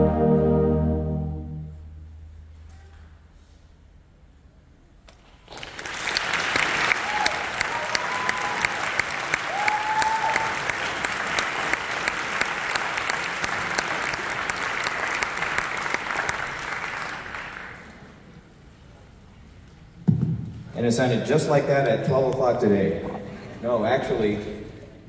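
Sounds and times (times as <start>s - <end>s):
audience applause: 5.3s - 18.2s
crowd whooping: 6.8s - 10.7s.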